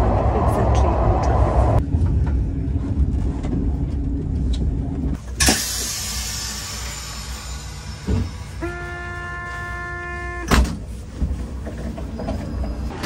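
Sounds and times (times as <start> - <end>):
train rumbling: 0.0 - 13.0
train doors opening with hiss: 5.2 - 8.6, 10.3 - 13.0.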